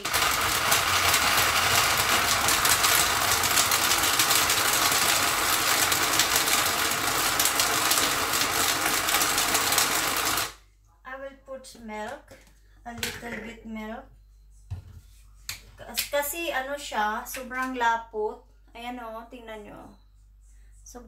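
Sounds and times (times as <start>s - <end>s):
blender motor running: 0.0s - 10.6s.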